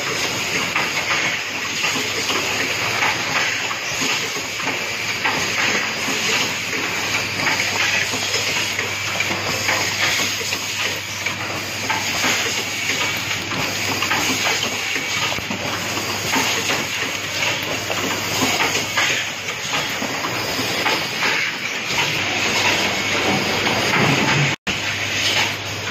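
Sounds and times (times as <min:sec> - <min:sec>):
assembly machine running: 0:00.0 - 0:25.9.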